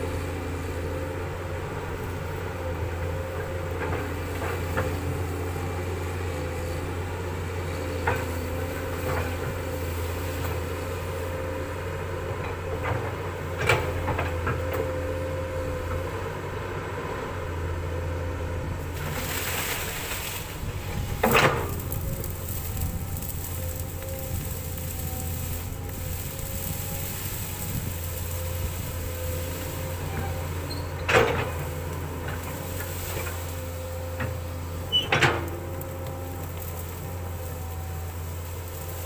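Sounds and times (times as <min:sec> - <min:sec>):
excavator diesel engine running: 0:00.0 - 0:39.0
brush rustling and crunching: 0:18.9 - 0:30.7, 0:31.5 - 0:39.0.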